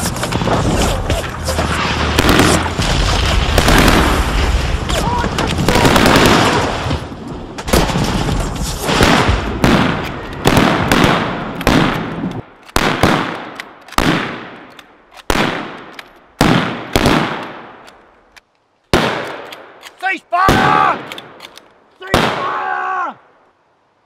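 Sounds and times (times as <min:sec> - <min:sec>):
gunfire: 0:02.0 - 0:02.9, 0:03.5 - 0:04.3, 0:08.9 - 0:14.6
echoing rifle shots: 0:03.5 - 0:04.3, 0:09.0 - 0:17.8, 0:18.9 - 0:19.8.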